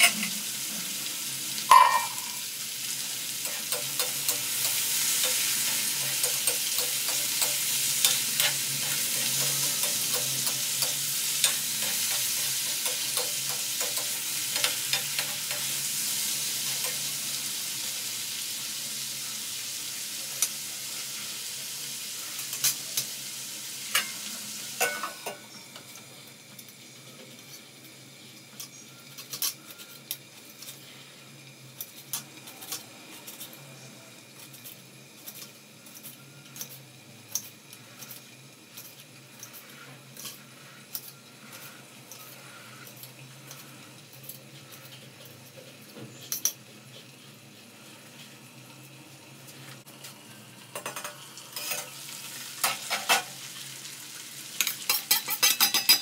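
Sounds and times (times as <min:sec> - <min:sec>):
potatoes sizzling in oil: 0:00.0 - 0:56.0
lid clanking onto pan: 0:01.7 - 0:02.4.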